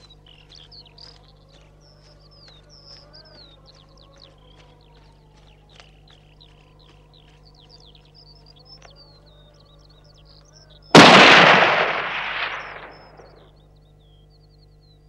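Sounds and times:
small birds chirping: 0.0s - 15.0s
loud gunshot with echo: 11.0s - 13.4s.

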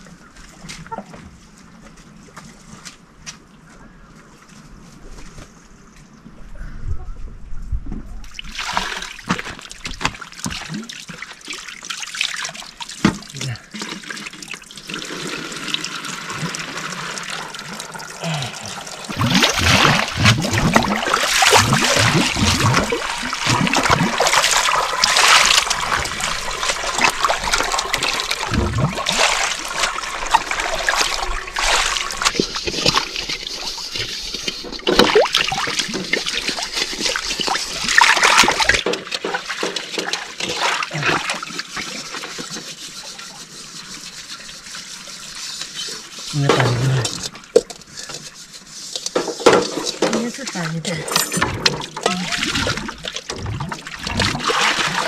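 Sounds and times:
water splashing onto concrete: 8.3s - 13.5s, 14.1s - 33.5s, 34.8s - 42.4s, 51.6s - 55.0s
hands sloshing water in basins: 8.3s - 55.0s.

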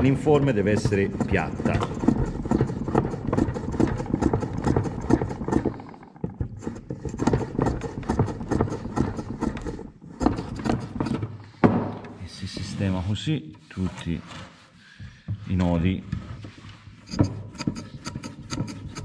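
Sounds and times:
block plane shaving bamboo: 0.0s - 11.4s, 12.3s - 13.1s, 16.7s - 19.0s.

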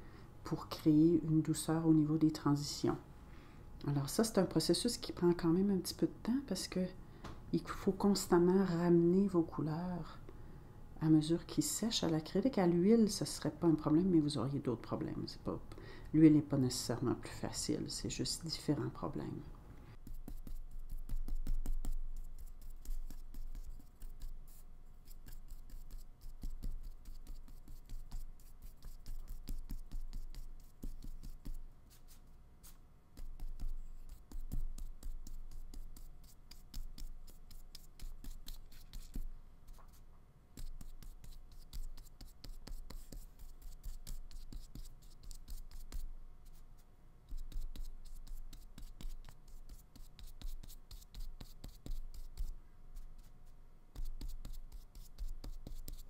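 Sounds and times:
paintbrush stroking paint: 19.9s - 56.0s.

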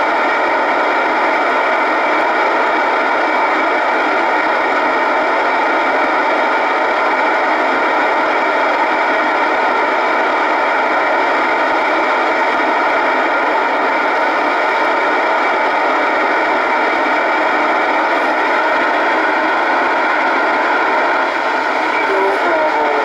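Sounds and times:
radio receiver static hiss: 11.7s - 23.0s.

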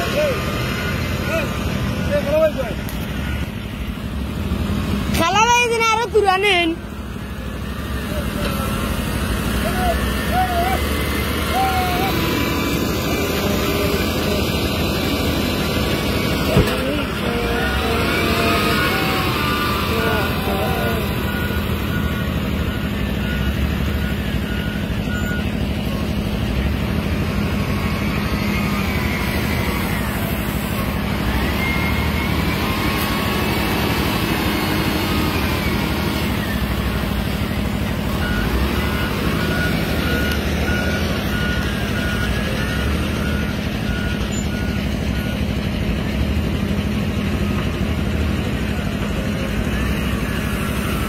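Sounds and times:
diesel engine running: 0.0s - 51.0s
reversing alarm beeps: 9.7s - 46.1s.

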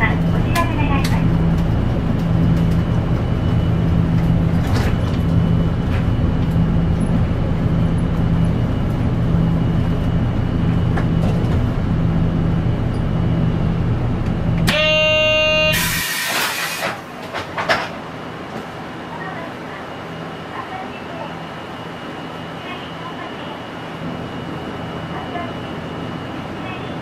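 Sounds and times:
bus engine running: 0.0s - 27.0s
electronic buzzer tone: 14.7s - 16.4s.

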